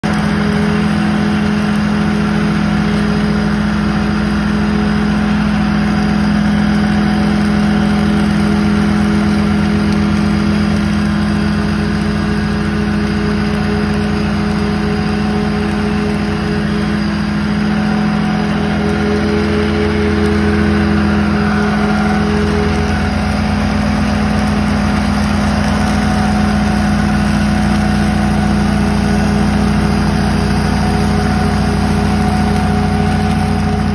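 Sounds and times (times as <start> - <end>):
mower deck picking up leaves: 0.0 - 33.9
riding mower engine running: 0.0 - 33.9.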